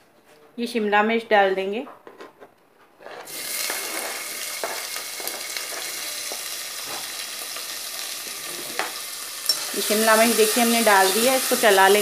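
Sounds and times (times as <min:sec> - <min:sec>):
vegetables sizzling in hot oil: 0:03.3 - 0:12.0.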